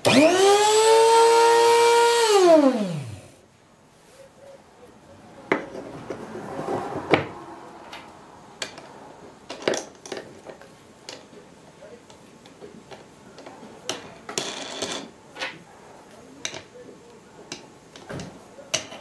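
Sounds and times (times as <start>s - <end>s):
rotary tool whining: 0.0s - 3.4s.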